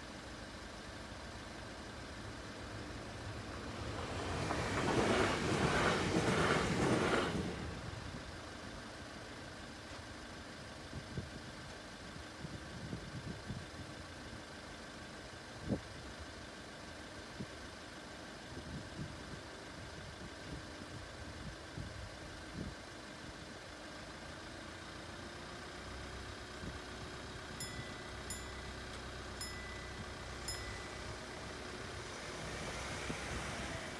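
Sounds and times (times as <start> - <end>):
car engines idling: 0.0 - 33.9.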